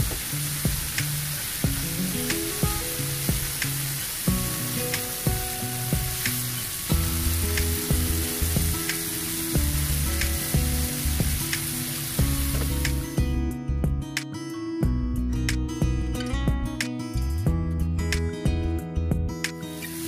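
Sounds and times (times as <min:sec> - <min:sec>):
chicken sizzling in oil: 0:00.0 - 0:13.2, 0:19.7 - 0:20.0
background music plucked notes: 0:00.0 - 0:20.0
sharp oil pops: 0:07.5 - 0:09.3, 0:11.2 - 0:13.0.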